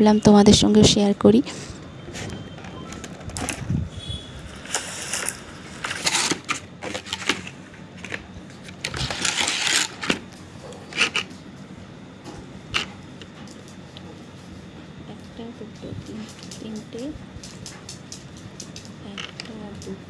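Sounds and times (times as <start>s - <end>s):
plastic rustling: 1.7s - 11.4s.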